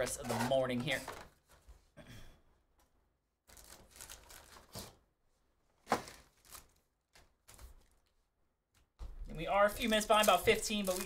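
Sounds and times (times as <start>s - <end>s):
cardboard and foil tearing and crinkling: 3.5s - 4.9s, 6.0s - 6.8s, 9.7s - 11.0s.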